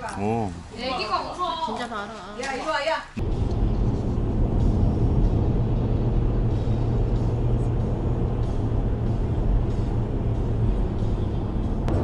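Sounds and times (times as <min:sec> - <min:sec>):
car driving rumble from inside cabin: 0:03.2 - 0:12.0.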